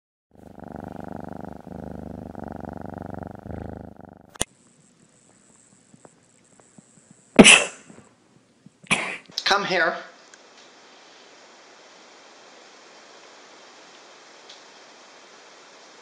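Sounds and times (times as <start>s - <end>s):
cat purring: 0.4s - 4.5s.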